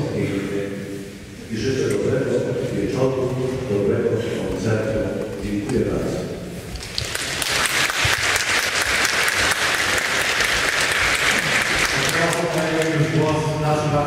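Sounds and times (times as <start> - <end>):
audience applauding: 6.8 - 13.3.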